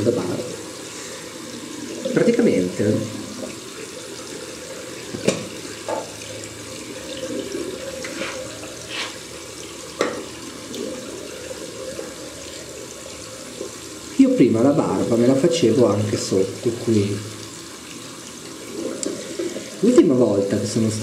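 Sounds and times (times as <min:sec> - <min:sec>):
tap running into sink: 0:05.0 - 0:07.2, 0:07.8 - 0:09.2, 0:09.9 - 0:11.0.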